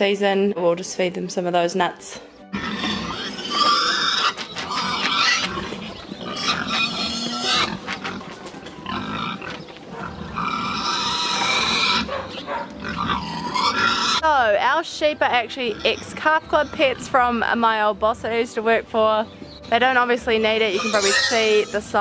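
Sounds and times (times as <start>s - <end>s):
pigs squealing: 2.5s - 14.2s, 15.6s - 17.1s, 20.7s - 22.0s.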